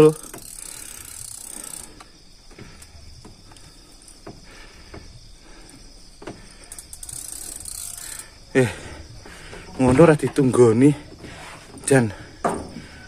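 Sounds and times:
fishing reel clicking: 0.0 - 2.2, 6.6 - 8.6.

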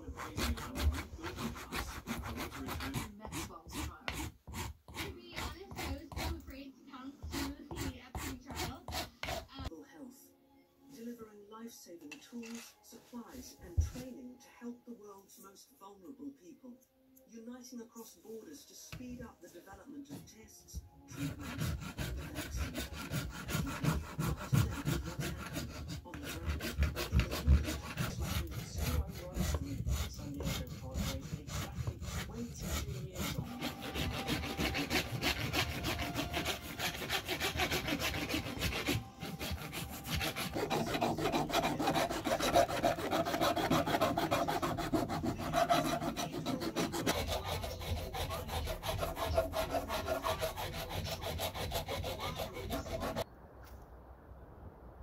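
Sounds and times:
file rasping on wood: 0.0 - 6.6, 7.2 - 9.7, 21.1 - 53.2
knife shaving wood: 0.0 - 6.6, 7.2 - 9.7, 21.1 - 53.2.

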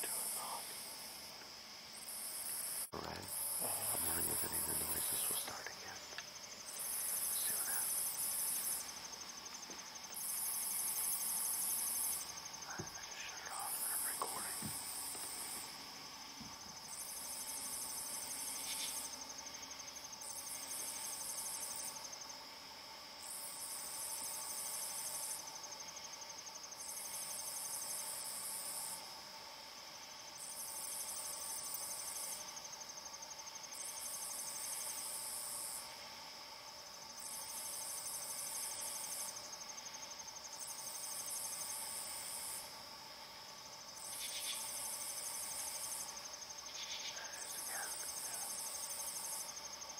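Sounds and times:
insect trill: 0.0 - 49.9
low insect drone: 0.0 - 49.9.

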